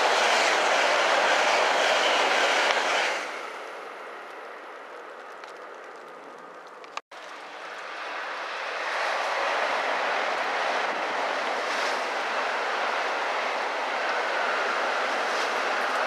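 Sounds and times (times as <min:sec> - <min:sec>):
bullet train passing at speed: 0:00.0 - 0:06.6, 0:07.2 - 0:16.0.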